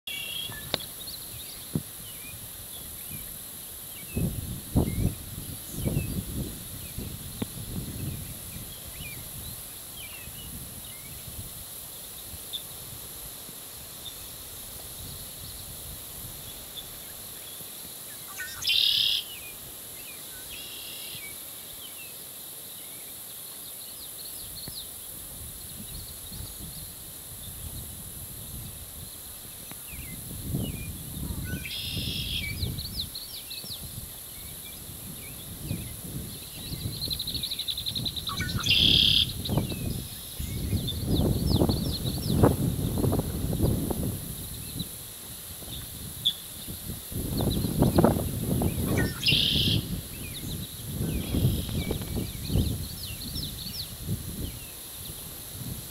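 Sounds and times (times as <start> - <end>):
buzzy bird song phrases: 0.1 - 12.8, 15.0 - 45.0, 45.6 - 55.9
wind rumble on microphone: 0.5 - 13.3, 14.6 - 16.7, 24.4 - 55.9
birds chirping and singing: 35.2 - 43.8, 47.3 - 54.7.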